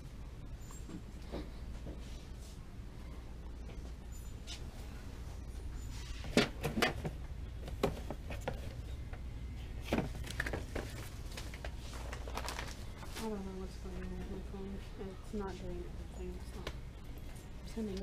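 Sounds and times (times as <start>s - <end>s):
steady low hum: 0.0s - 18.0s
objects clacking and knocking: 6.2s - 9.2s, 9.8s - 11.7s.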